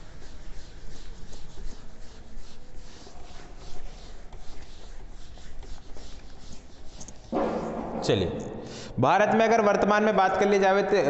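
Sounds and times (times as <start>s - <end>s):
eraser rubbing on whiteboard: 0.0s - 8.0s.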